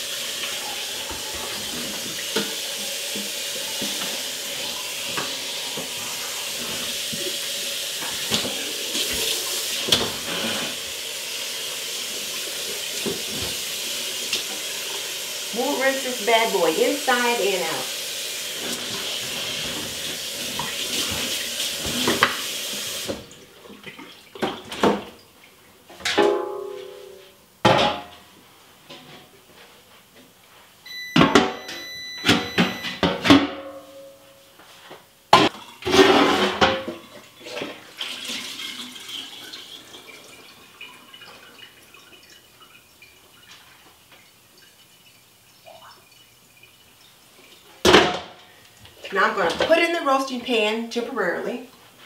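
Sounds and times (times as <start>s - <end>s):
kitchen tap running: 0.0s - 25.5s, 37.1s - 50.6s.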